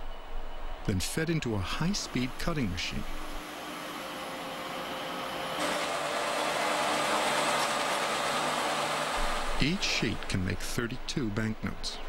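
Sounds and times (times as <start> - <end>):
paper sheeting machine whirring: 1.6 - 10.8.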